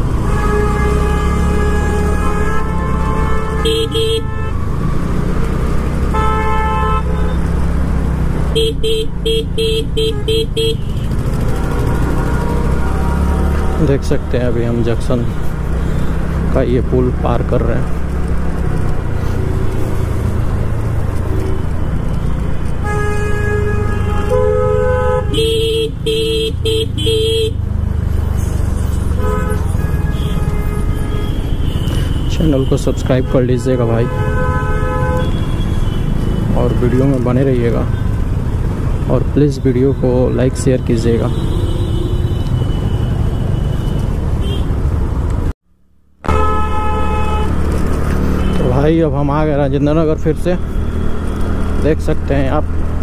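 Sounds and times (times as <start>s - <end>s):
low rumble of wind and road: 0.0s - 53.0s
vehicle horns honking: 0.2s - 4.7s, 6.1s - 7.6s, 8.5s - 11.4s, 22.8s - 27.6s, 29.0s - 38.4s, 39.0s - 44.8s, 46.2s - 48.9s
scooter rumble: 9.2s - 13.8s.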